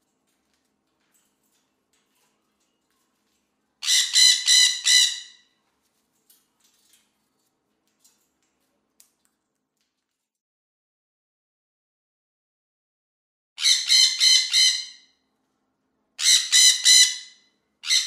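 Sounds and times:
faint clicks: 6.0 - 10.4.

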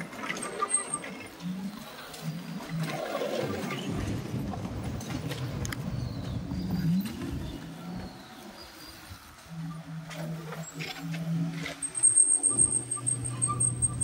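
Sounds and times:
road noise: 0.0 - 14.0
wind rumble: 1.2 - 10.0
short rising whine: 9.6 - 14.0.

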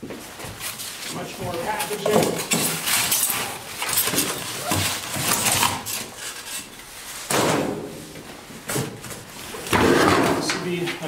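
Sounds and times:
foam wrap and cardboard rustling: 0.1 - 7.3.

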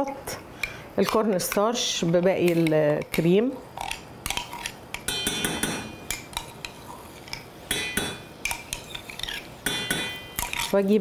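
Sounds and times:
spoon clinking on metal saucepan: 5.1 - 6.8, 7.7 - 9.0, 9.6 - 10.7.

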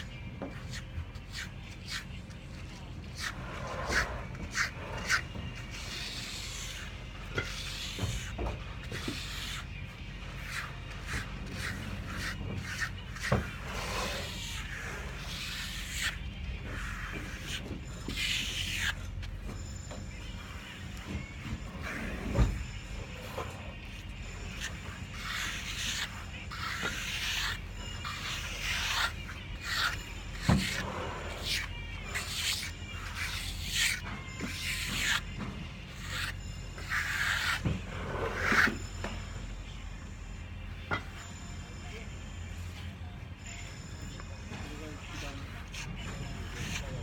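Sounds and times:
applicator scratching on wall: 2.8 - 19.6, 21.0 - 38.8, 45.4 - 47.0.

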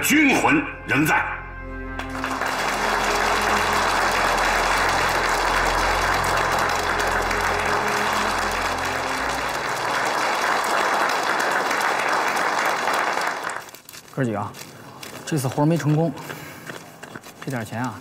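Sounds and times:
soft background music: 0.0 - 11.5
crowd applauding: 1.9 - 13.8.

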